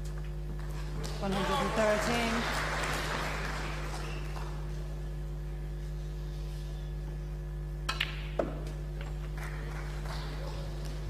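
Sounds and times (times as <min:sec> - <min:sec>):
low hum of quiet arena: 0:00.0 - 0:11.0.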